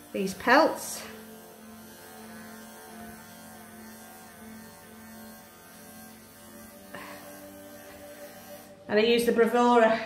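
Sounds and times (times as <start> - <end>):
electric clippers humming: 0.0 - 10.0.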